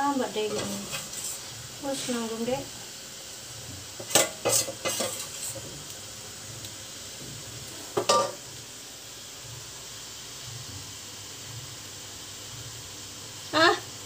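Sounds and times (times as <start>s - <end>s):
metal spoon scraping a pot: 0.5s - 1.5s, 4.0s - 5.6s.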